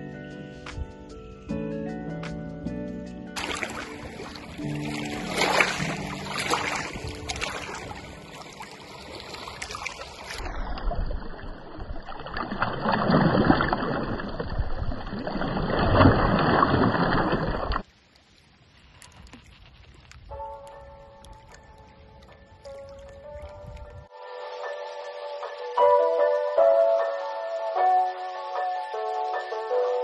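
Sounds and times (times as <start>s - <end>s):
waves splashing against rocks: 3.4s - 17.9s
water gently lapping: 3.4s - 24.1s.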